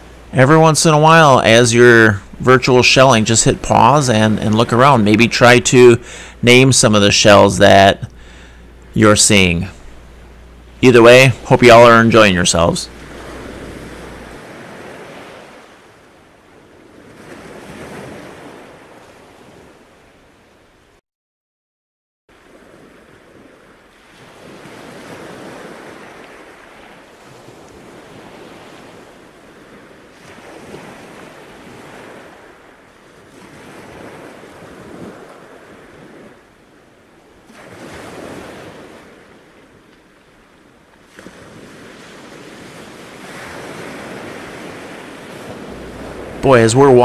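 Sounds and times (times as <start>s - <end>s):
surf washing up on beach: 0.0s - 20.6s, 22.3s - 47.0s
wind on the microphone: 41.2s - 47.0s.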